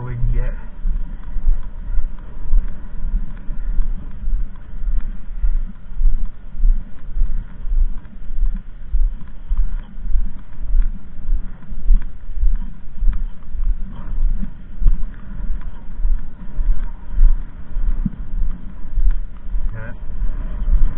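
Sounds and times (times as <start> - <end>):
footsteps on concrete: 0.0 - 20.9.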